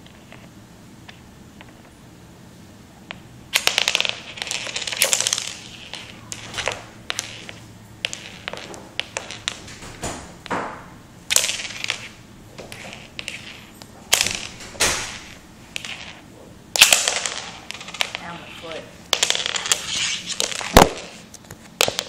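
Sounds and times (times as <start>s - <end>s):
toy hockey stick clacking pucks: 3.1s - 10.6s, 11.3s - 16.2s, 16.8s - 22.0s.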